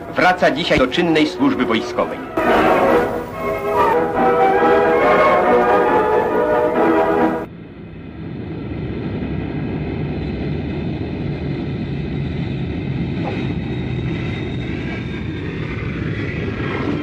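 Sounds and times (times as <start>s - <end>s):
low engine drone: 0.0s - 17.0s
music: 1.2s - 7.5s.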